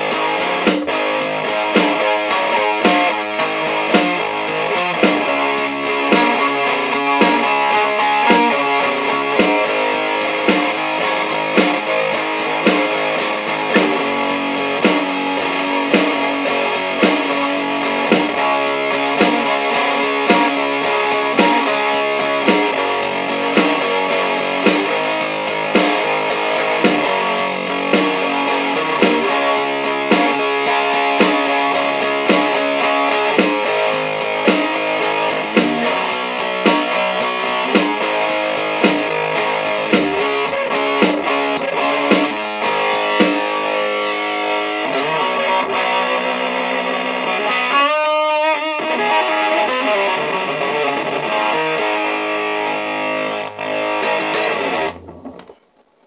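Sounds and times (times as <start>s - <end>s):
distorted electric guitar chords: 0.0s - 55.6s.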